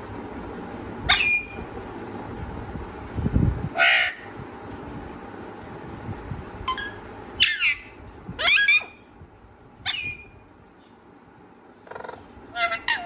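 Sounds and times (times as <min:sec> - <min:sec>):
parrot squawking: 0:01.1 - 0:01.6, 0:03.8 - 0:04.3, 0:07.4 - 0:09.0, 0:09.9 - 0:10.3, 0:11.9 - 0:13.0.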